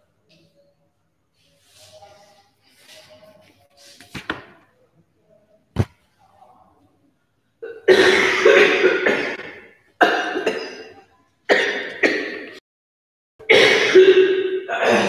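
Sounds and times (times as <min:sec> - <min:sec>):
woman coughing hard: 0:07.6 - 0:12.6, 0:13.5 - 0:15.0.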